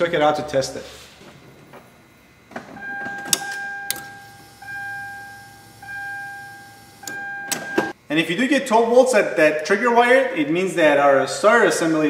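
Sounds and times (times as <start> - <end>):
car warning chime dinging: 2.8 - 8.0.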